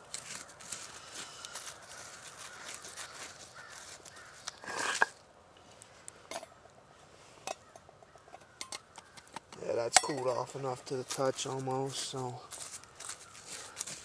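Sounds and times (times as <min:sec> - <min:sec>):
ashes crunching and scraping: 0:00.0 - 0:06.1, 0:09.0 - 0:14.0.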